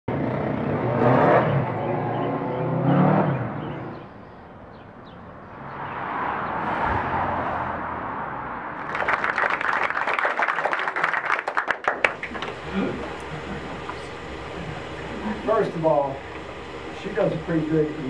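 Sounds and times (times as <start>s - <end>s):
vehicle passing on street: 0.1s - 18.0s
audience applauding: 8.8s - 14.2s.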